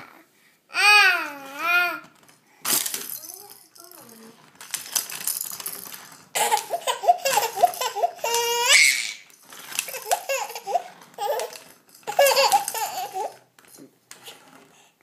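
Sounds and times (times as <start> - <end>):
toddler giggling: 6.4 - 8.8, 9.9 - 13.4
toddler squealing: 6.9 - 9.2.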